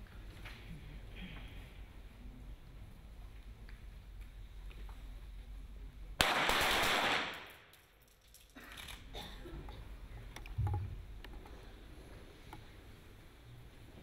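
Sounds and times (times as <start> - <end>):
pistol shots with echo: 6.2 - 7.7.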